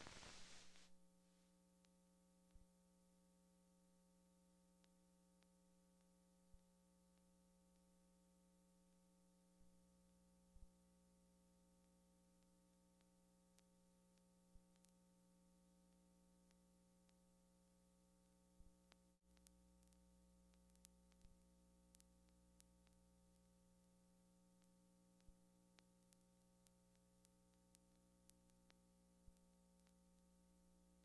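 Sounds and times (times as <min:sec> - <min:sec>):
faint steady hum: 0:00.0 - 0:31.0
small clicks: 0:18.6 - 0:23.0, 0:24.6 - 0:30.0.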